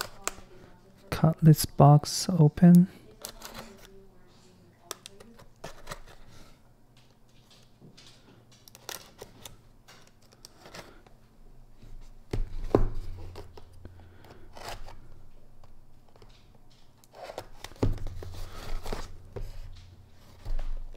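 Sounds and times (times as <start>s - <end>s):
knife cutting tape and cardboard: 12.6s - 15.1s.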